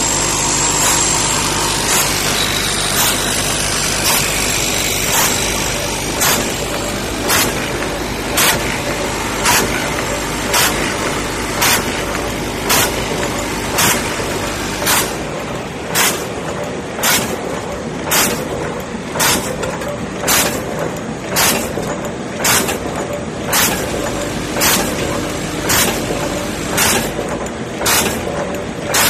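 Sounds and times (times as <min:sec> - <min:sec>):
short loud machine bursts: 0:00.0 - 0:07.7
machine clatter and hum: 0:00.0 - 0:29.0.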